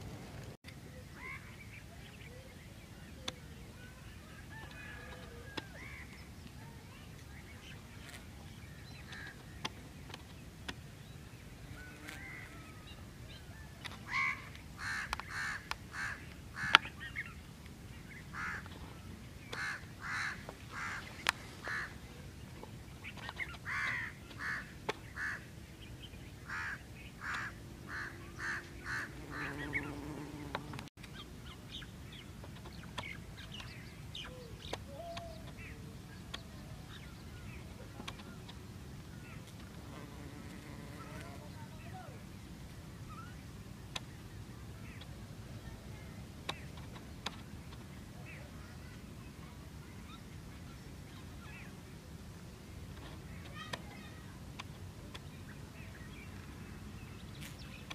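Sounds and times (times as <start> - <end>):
birds calling: 11.4 - 17.4, 18.0 - 22.3, 22.9 - 42.0.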